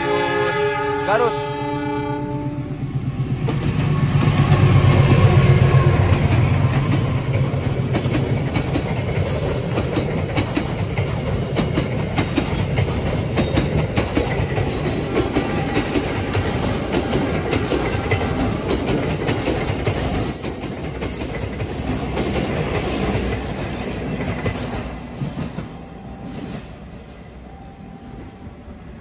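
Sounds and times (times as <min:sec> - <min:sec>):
train wheels clattering on rail joints: 0:03.4 - 0:26.9.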